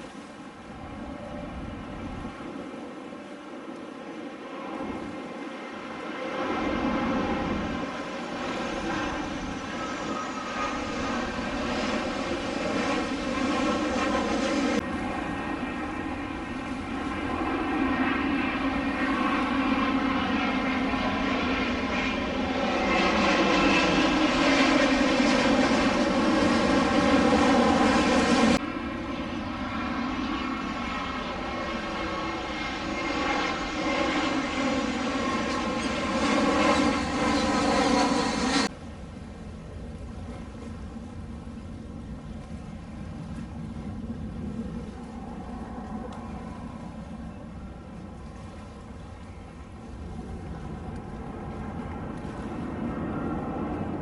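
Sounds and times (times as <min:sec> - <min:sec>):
jet airliner engines droning: 0:00.0 - 0:54.0.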